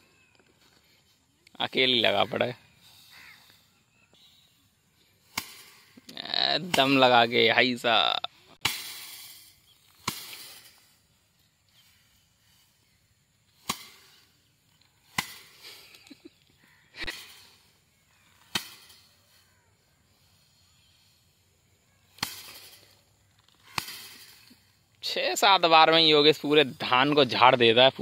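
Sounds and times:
rice bundles slapping wire mesh: 5.2 - 7.6, 8.6 - 11.1, 13.5 - 16.2, 18.3 - 19.6, 22.0 - 24.8.

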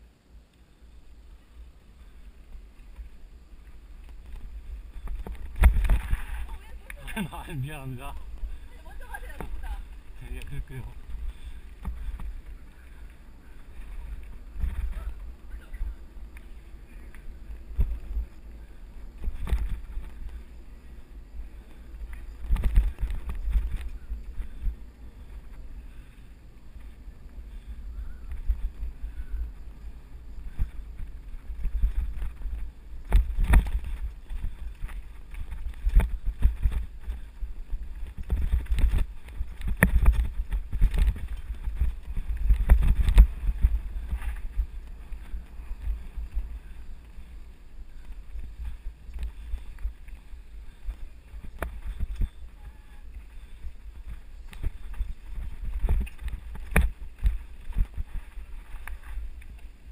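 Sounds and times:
wind rumble on microphone: 0.9 - 59.9
bike rattles and knocks: 21.6 - 25.6, 30.3 - 46.9, 53.2 - 59.9.

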